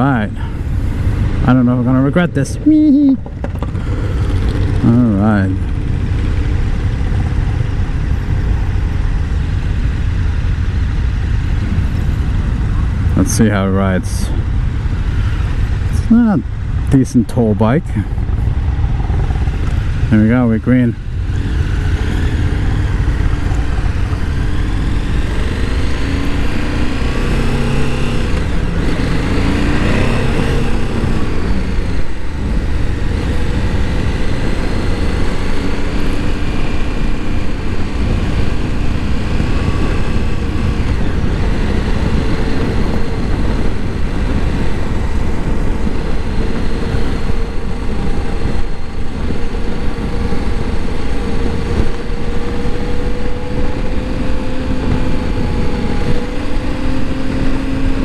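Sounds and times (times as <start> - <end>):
motorcycle engine accelerating: 0.0 - 58.0
wind rumble on microphone: 0.0 - 58.0.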